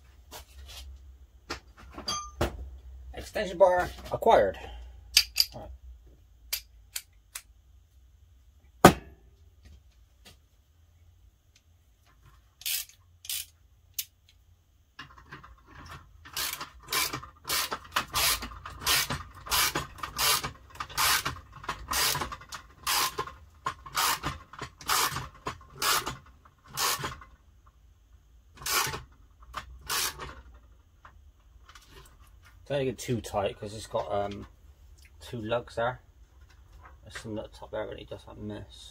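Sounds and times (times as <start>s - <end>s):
ratchet pawl rasping: 16.3s - 23.2s, 23.9s - 25.2s, 25.8s - 27.1s, 28.6s - 29.0s, 29.8s - 30.2s.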